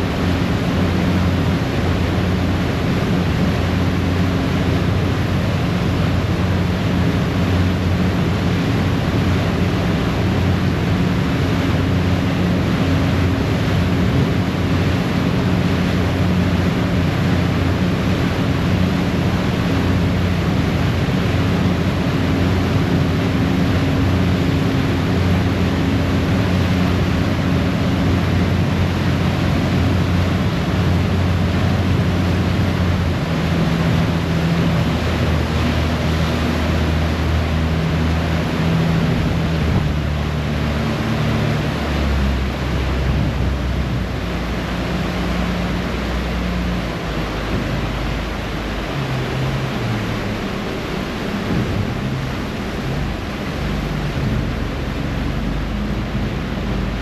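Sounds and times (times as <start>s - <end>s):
low engine drone: 0.0s - 57.0s
propeller wake churning: 0.0s - 57.0s
wind: 0.0s - 57.0s.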